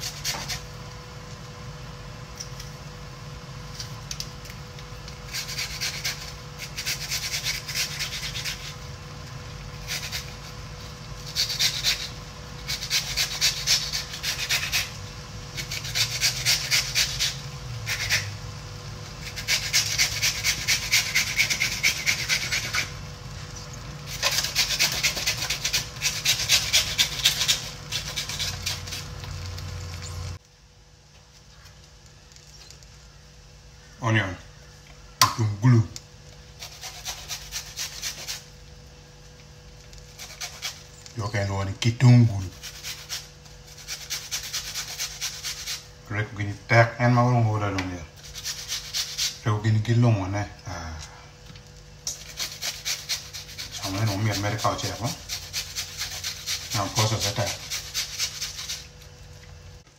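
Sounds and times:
pepper rasping on metal grater: 0:00.0 - 0:00.7, 0:05.2 - 0:08.9, 0:09.8 - 0:18.4, 0:19.2 - 0:23.0, 0:24.1 - 0:29.5, 0:36.6 - 0:38.5, 0:40.0 - 0:41.4, 0:42.4 - 0:45.9, 0:48.2 - 0:49.5, 0:52.0 - 0:59.0.

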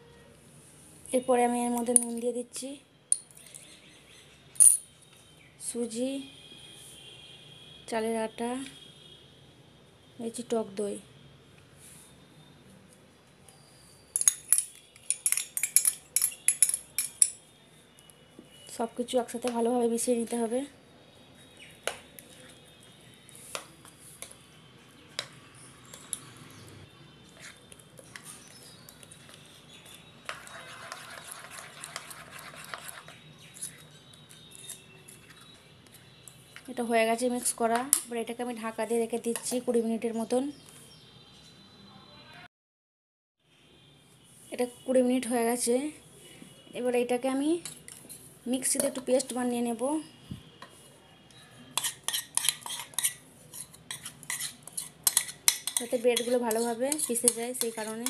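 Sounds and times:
spoon stirring thick batter: 0:21.3 - 0:38.1, 0:47.6 - 0:49.4, 0:50.4 - 0:58.0
spoon scraping bowl: 0:22.1 - 0:24.4, 0:27.2 - 0:36.4, 0:51.6 - 0:58.0.

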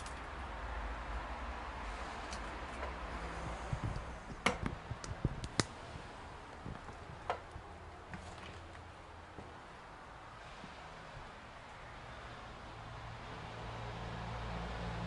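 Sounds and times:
steady low rumble: 0:00.0 - 0:08.1
sharp clicks and snaps: 0:03.9 - 0:05.8.

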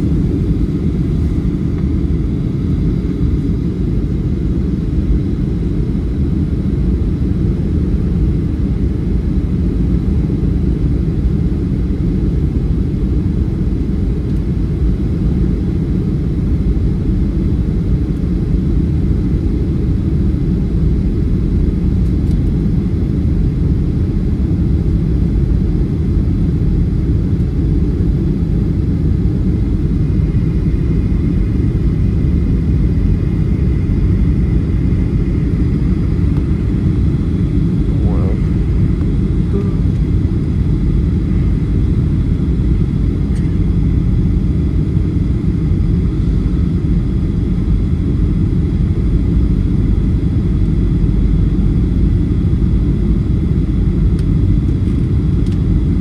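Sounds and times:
engine rumble and rushing air: 0:00.0 - 0:56.0
faint high whine: 0:29.6 - 0:46.9.

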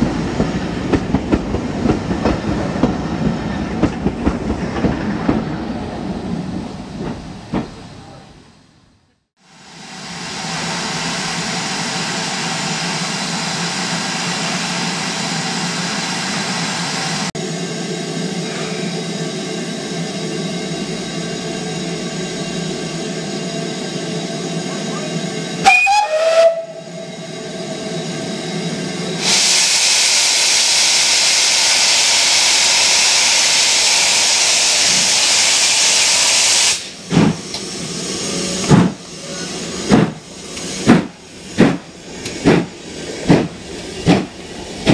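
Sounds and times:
steam locomotive simmering: 0:09.4 - 0:44.9
steam whistle blast: 0:25.6 - 0:27.0
steam hissing: 0:27.2 - 0:44.9.

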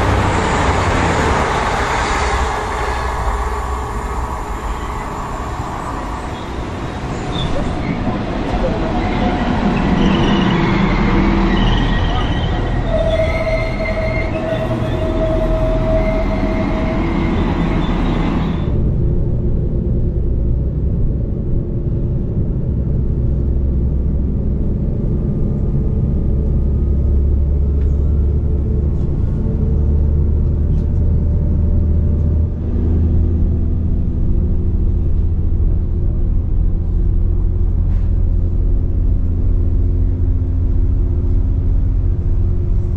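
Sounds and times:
train rumble with engine hum: 0:00.0 - 0:42.9.

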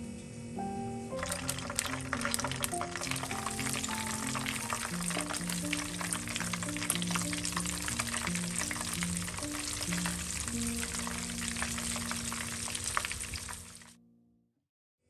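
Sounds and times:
soft background music: 0:00.0 - 0:14.0
food deep-frying in oil: 0:01.0 - 0:13.9.

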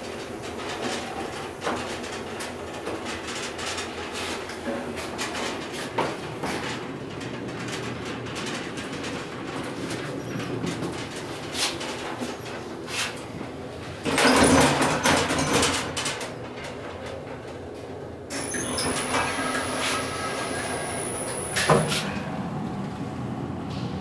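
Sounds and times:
sliding door motor hum: 0:18.3 - 0:24.0
loud rushing rumble: 0:19.6 - 0:24.0.

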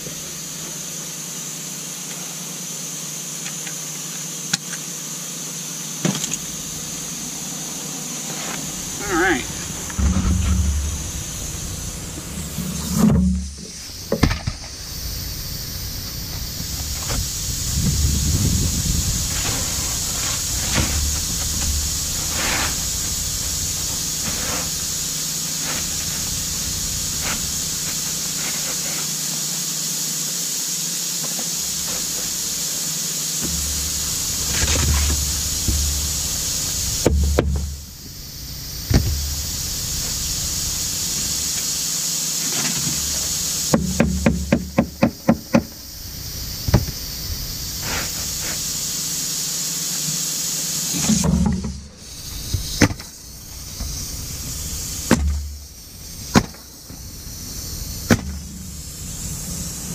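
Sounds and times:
steady high hiss: 0:00.0 - 0:59.9
scraping and handling: 0:06.3 - 0:14.8
sharp knocks: 0:08.5 - 0:18.6, 0:37.0 - 0:37.8, 0:43.7 - 0:45.8, 0:58.1 - 0:58.5.

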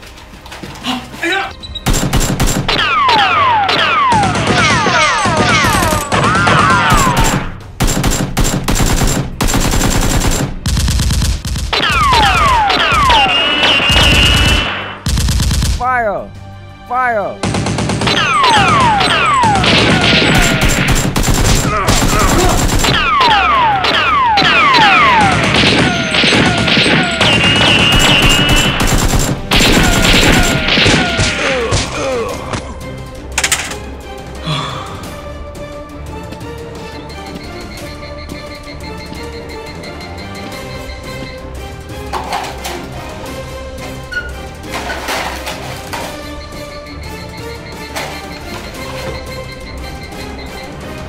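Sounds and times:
background music: 0:00.0 - 0:51.0
automatic gunfire bursts: 0:06.9 - 0:13.1, 0:17.4 - 0:23.1, 0:24.7 - 0:31.2.

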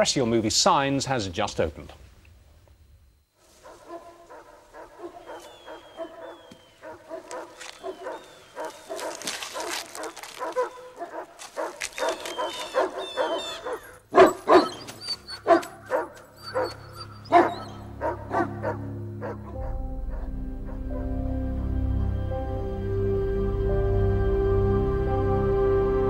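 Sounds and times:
dogs barking: 0:03.5 - 0:21.3
low music drone: 0:17.1 - 0:26.0.

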